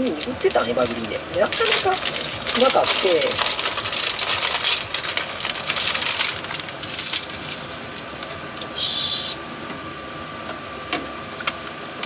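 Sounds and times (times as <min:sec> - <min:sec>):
dried seaweed crackling: 0:00.0 - 0:09.2
short steady hiss: 0:08.6 - 0:09.5.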